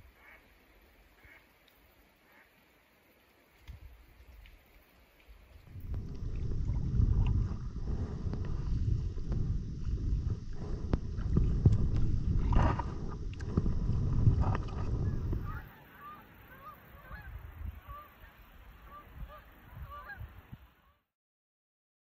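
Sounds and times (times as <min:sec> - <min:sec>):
heavy low rumble: 0:05.7 - 0:15.6
geese honking: 0:15.0 - 0:20.3.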